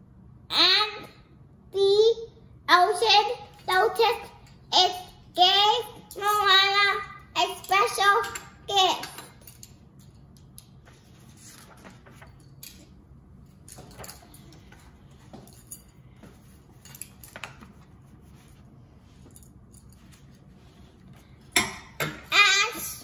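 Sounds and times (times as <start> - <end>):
book pages turning on glass: 10.8 - 12.6.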